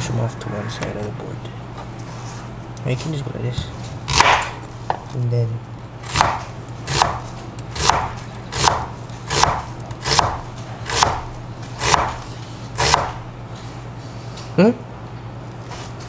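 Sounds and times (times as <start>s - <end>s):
knife slicing onion: 6.0s - 13.2s.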